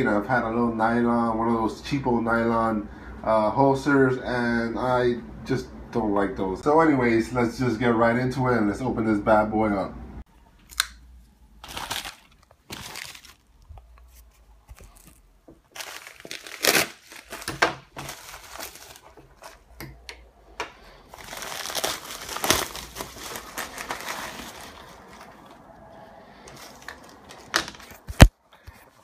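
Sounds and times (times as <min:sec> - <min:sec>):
plastic crinkling and rustling: 0:11.6 - 0:25.8, 0:26.4 - 0:28.3.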